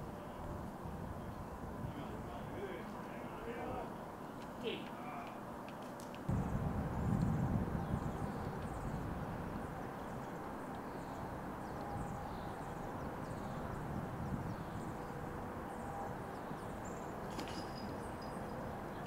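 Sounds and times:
low background rumble: 6.3s - 14.8s.

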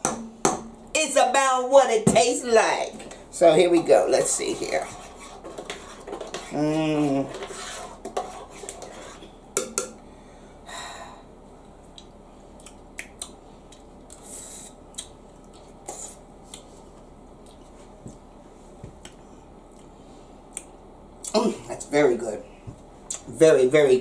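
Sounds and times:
metal spoon scraping a pot: 4.1s - 9.3s.

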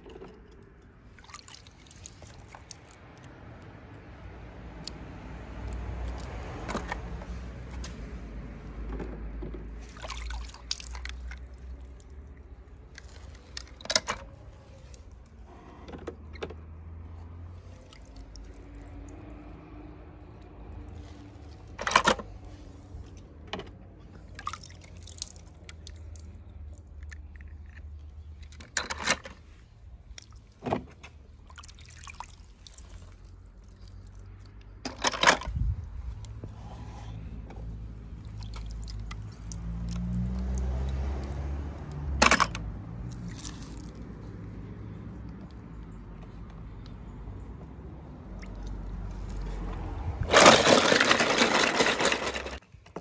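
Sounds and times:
toy cars clicking on rocks: 49.7s - 53.0s.

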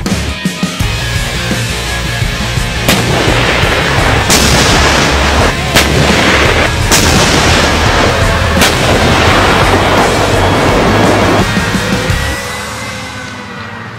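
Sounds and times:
tank gun blasts: 2.8s - 11.7s.

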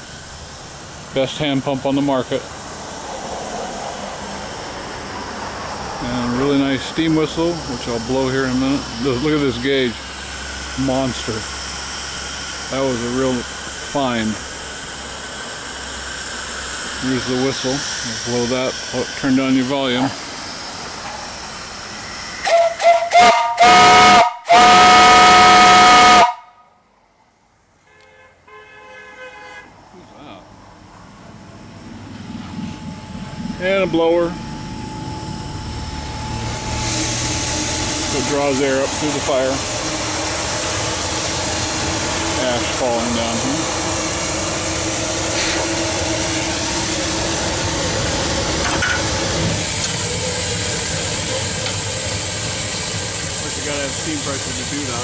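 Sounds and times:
steam hissing: 0.0s - 26.4s, 31.6s - 55.0s
steam whistle blasts: 22.0s - 26.7s, 34.2s - 55.0s.

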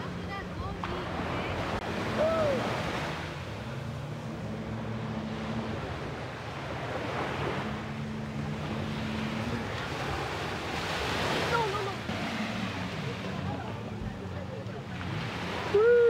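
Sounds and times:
low boat engine hum: 0.0s - 16.0s
surf washing onto shore: 0.7s - 4.3s, 5.1s - 14.1s.

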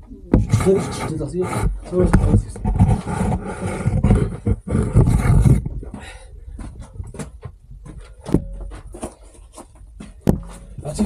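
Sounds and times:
footsteps on loose dirt and stone: 1.6s - 11.0s
person breathing and grunting: 5.8s - 6.6s.

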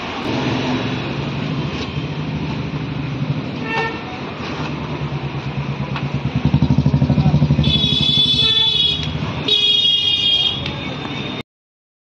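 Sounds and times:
vehicle engine running: 4.3s - 9.5s
horn toot: 7.6s - 10.6s.

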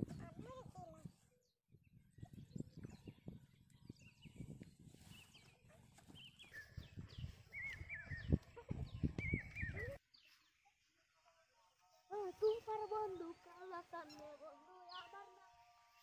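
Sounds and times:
small bird chirping: 1.8s - 10.7s.

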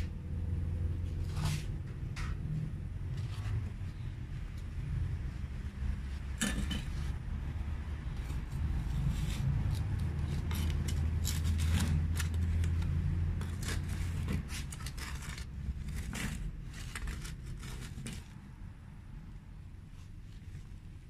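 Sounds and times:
low steady rumble: 0.0s - 21.0s
plastic trowel scraping a pot: 8.1s - 18.4s.

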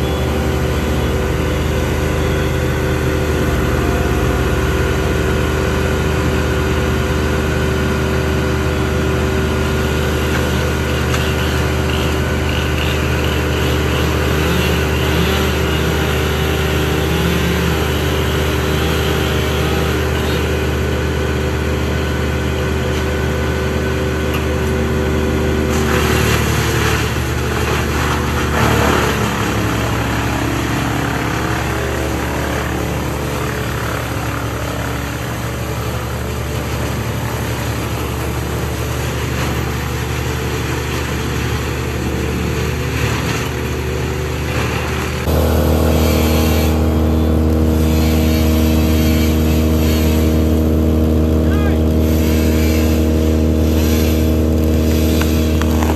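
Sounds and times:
brush chipper engine running: 0.0s - 55.9s
mini loader engine running: 0.0s - 55.9s
chipper grinding brush: 8.8s - 55.9s.

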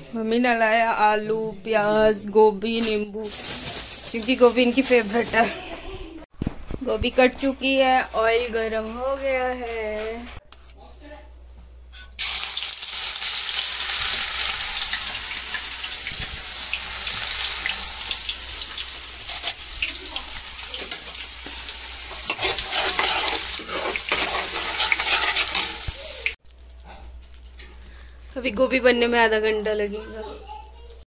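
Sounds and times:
cauliflower sizzling in hot oil: 12.2s - 29.4s
spatula clicking and scraping pan: 20.7s - 26.4s.

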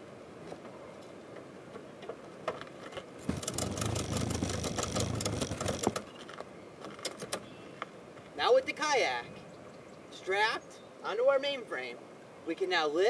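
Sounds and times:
ratchet strap clicking: 3.3s - 6.1s.

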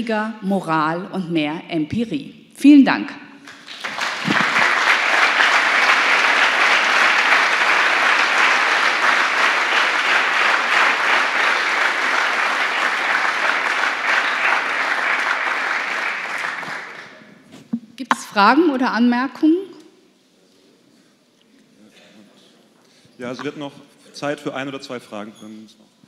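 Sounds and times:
audience applauding: 3.4s - 17.3s.

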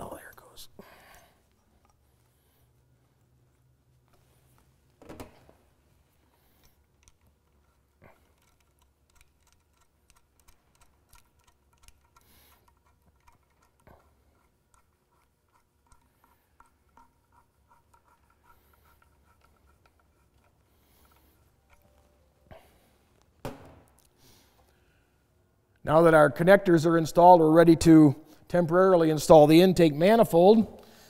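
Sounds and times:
hose clamp ticking under screwdriver: 6.6s - 22.0s.

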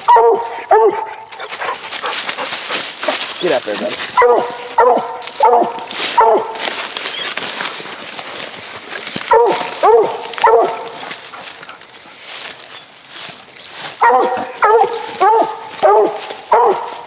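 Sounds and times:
dog barking loudly: 0.0s - 3.4s, 4.0s - 6.8s, 9.2s - 11.4s, 13.9s - 17.0s.

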